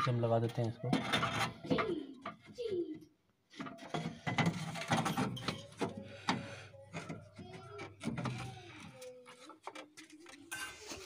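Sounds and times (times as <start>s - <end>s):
radiator scraping against metal: 0.0s - 1.6s.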